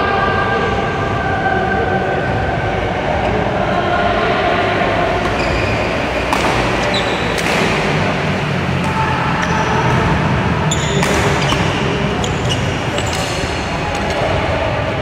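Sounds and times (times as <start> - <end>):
loud steady rushing noise: 0.0 - 15.0
shoes squeaking on court floor: 5.2 - 7.5, 10.7 - 14.1
racket hitting shuttlecock: 6.2 - 10.0, 10.7 - 14.2.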